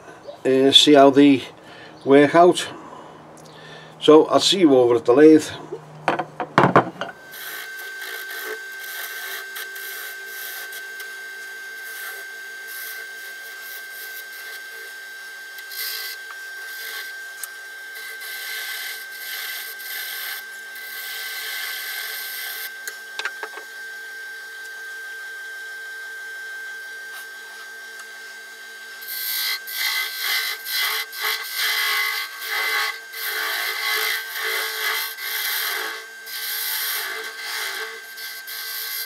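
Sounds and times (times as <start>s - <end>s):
wood lathe whining: 3.6s - 39.0s
turning tool cutting wood: 7.2s - 23.5s, 29.0s - 39.0s.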